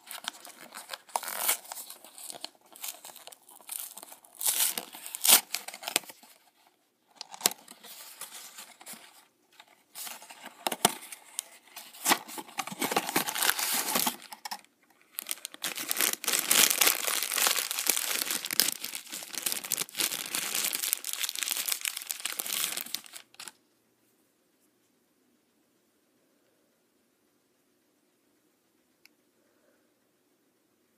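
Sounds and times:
foil bag crinkling and tearing: 0:00.0 - 0:06.4, 0:11.8 - 0:23.6
cardboard box tearing: 0:11.9 - 0:14.3.

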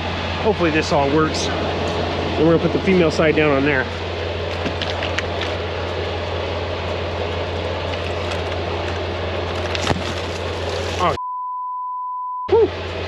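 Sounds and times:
diesel engine idling: 0:00.0 - 0:11.2
censor beep: 0:11.2 - 0:12.7.

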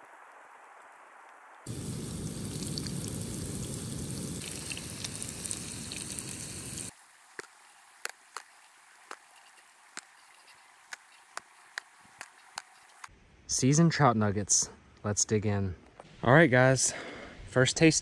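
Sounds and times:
nuggets sizzling in hot oil: 0:01.7 - 0:13.1.

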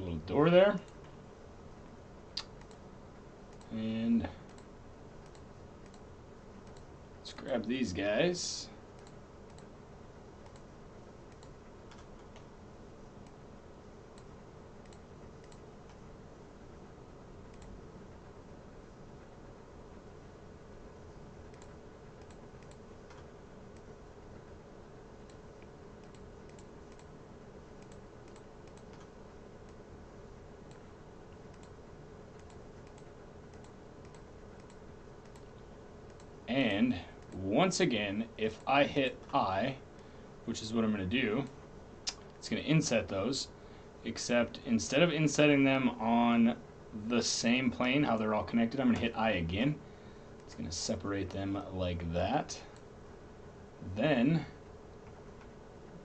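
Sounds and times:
faint steady hiss: 0:00.0 - 0:56.0
steady background hum: 0:00.0 - 0:56.0
keyboard and mouse clicks: 0:02.3 - 0:02.8, 0:04.4 - 0:06.9, 0:10.4 - 0:10.7, 0:11.3 - 0:12.5, 0:21.5 - 0:23.9, 0:25.2 - 0:27.1, 0:27.8 - 0:29.8, 0:31.5 - 0:36.3.

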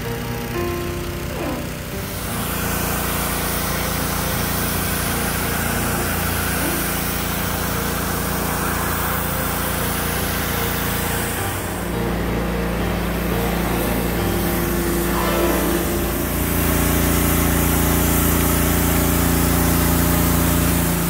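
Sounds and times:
small engine drone: 0:00.0 - 0:21.0
water jet hissing: 0:00.0 - 0:21.0.

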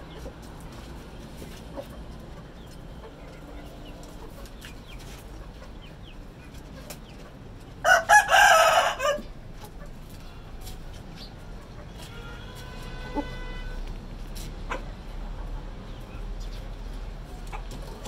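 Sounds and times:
chicken crowing: 0:07.8 - 0:09.3.

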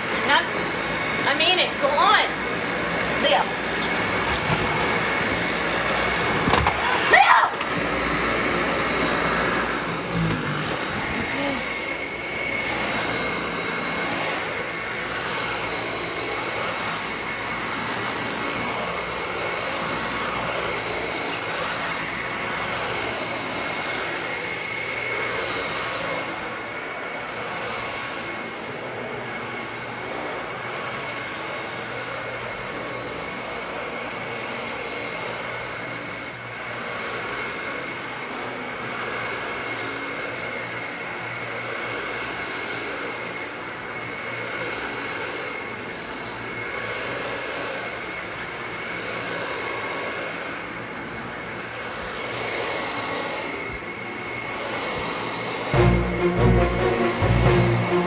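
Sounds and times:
vacuum cleaner on carpet: 0:00.0 - 0:58.0.

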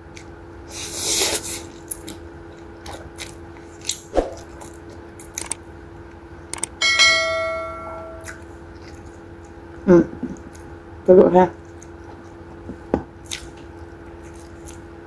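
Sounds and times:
chewing clicks: 0:01.9 - 0:05.6, 0:11.6 - 0:14.9
notification bell ding: 0:06.8 - 0:08.2.

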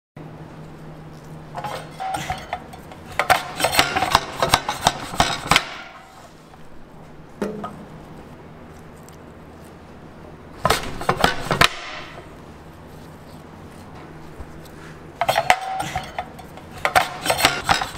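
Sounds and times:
steady low hum: 0:00.2 - 0:17.9.

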